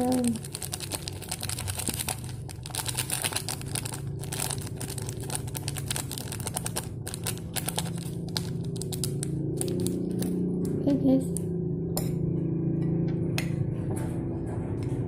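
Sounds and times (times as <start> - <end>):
foil sachet crinkling: 0.0 - 10.4
low steady hum: 0.0 - 15.0.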